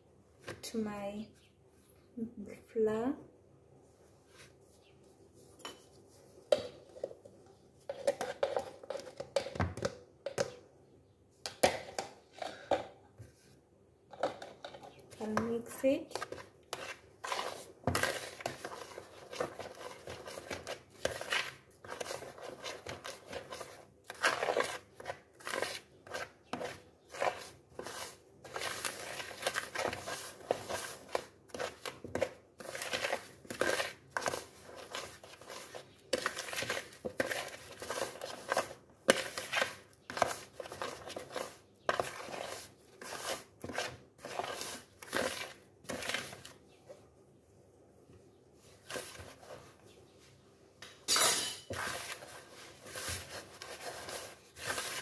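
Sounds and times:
hand scraping in plastic bowl: 16.1s - 46.6s, 48.7s - 49.8s, 51.7s - 55.0s.

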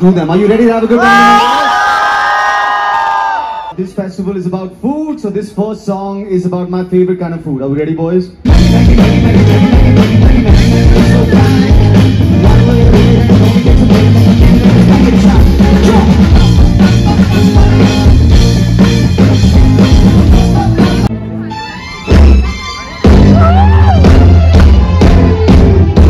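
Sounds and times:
live rock band playing: 8.4s - 26.0s.

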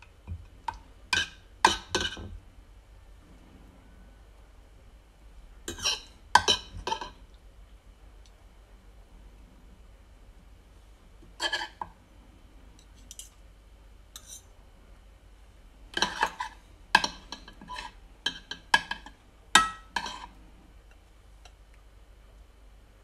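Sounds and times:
cutlery clinking against dishes: 1.1s - 2.4s, 5.7s - 7.2s, 14.2s - 14.5s, 16.0s - 20.3s.

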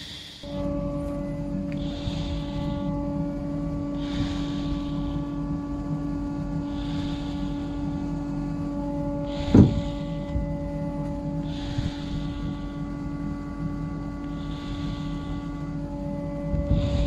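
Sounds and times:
machine motor humming: 0.4s - 17.0s
thump: 9.6s - 9.9s.

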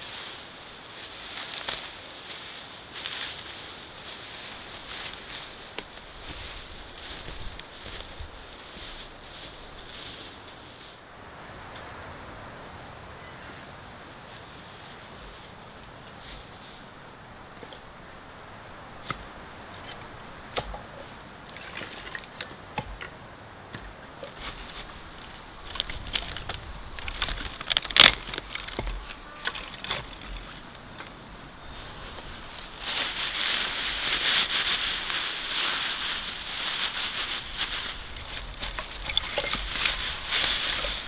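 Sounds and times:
dry grass rustling and crackling: 0.0s - 41.0s
sticks clicking and snapping: 25.7s - 29.2s.

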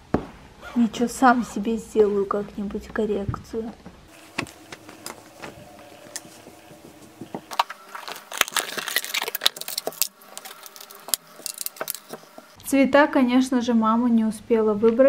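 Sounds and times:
rustling of supplies: 3.8s - 12.6s.

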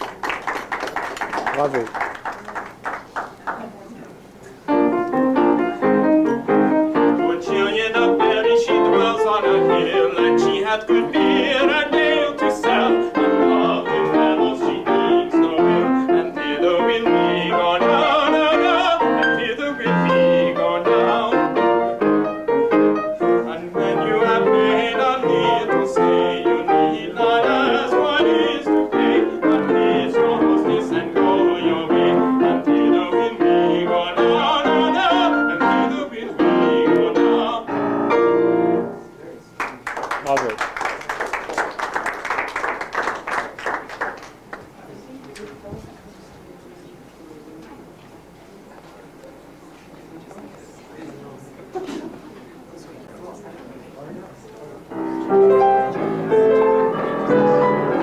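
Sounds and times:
piano music with quick notes: 4.6s - 39.8s, 54.9s - 58.0s.

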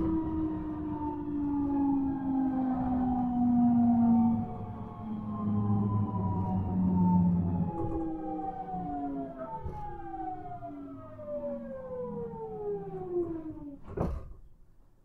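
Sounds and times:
train inverter whine: 0.0s - 13.8s.

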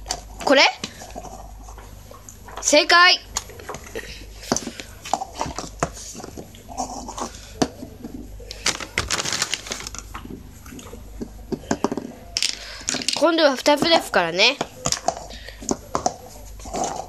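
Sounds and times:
plastic bowls clacking on floor: 3.4s - 17.0s.

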